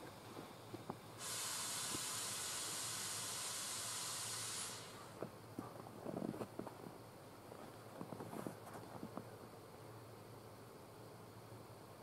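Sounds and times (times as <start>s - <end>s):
compressed air hissing: 0.6s - 5.2s.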